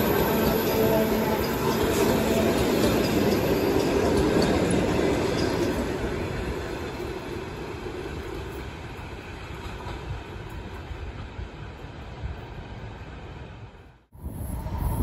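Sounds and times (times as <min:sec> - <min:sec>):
train wheel and rail rumble: 0:00.0 - 0:15.0.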